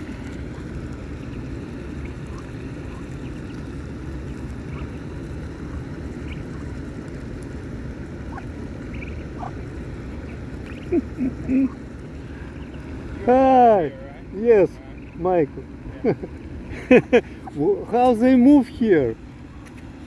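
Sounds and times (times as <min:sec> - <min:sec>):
ducklings peeping: 0:00.0 - 0:20.0.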